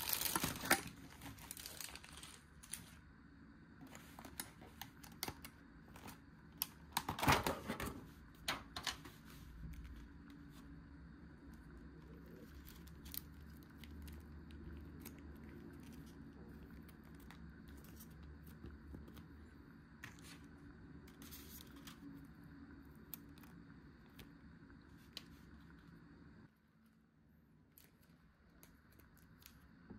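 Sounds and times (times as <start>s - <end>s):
plastic packaging crinkling: 0.0s - 3.0s, 12.2s - 18.6s
steady low hum: 0.0s - 29.9s.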